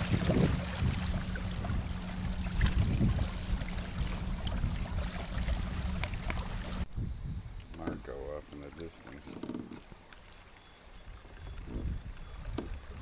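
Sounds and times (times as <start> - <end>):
small splashes: 0.0 - 6.9
water splashing along a hull: 0.0 - 6.9, 7.6 - 13.0
wind rumble on microphone: 0.0 - 8.2, 11.0 - 13.0.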